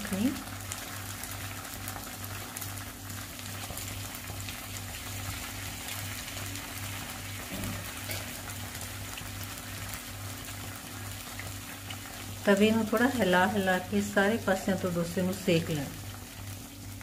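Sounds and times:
batter sizzling in a pan: 0.0 - 17.0.

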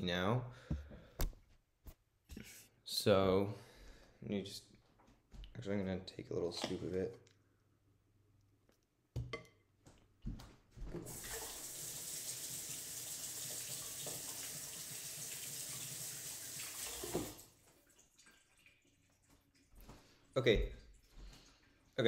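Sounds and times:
tap running into sink: 16.8 - 17.4.

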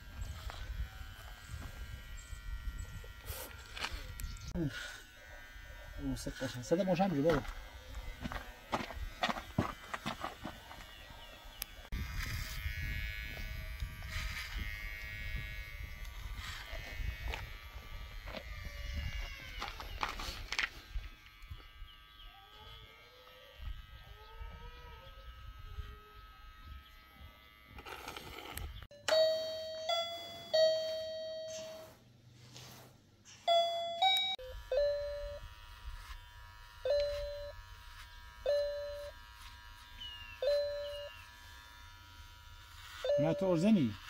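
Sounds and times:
electric hair clippers buzzing: 0.0 - 32.0, 33.4 - 44.0
chiming bell-like notes: 28.9 - 32.0, 33.4 - 35.4.

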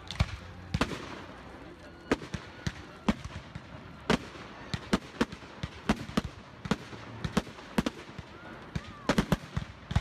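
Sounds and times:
fireworks bursting with sharp bangs: 0.0 - 10.0.

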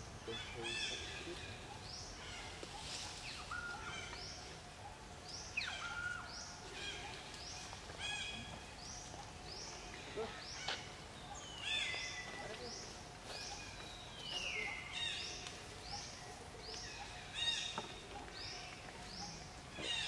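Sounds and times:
steady background hiss: 0.0 - 20.0
birds chirping and whistling: 5.3 - 20.0.

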